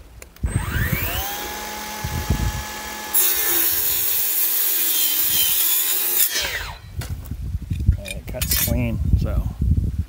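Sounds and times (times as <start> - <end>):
circular saw whining: 0.4 - 6.9
saw screeching cutting metal: 0.5 - 6.9.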